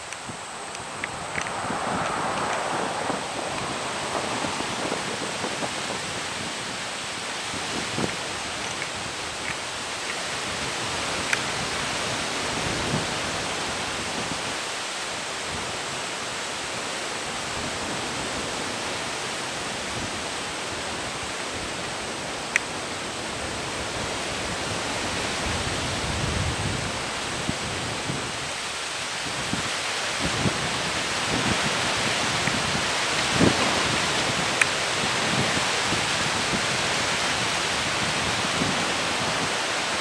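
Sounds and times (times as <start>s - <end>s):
faint clicks: 0.0s - 2.6s, 8.0s - 10.2s
wind rushing: 0.0s - 9.4s, 17.4s - 28.6s
wind buffeting microphone: 0.0s - 14.7s, 15.4s - 40.0s.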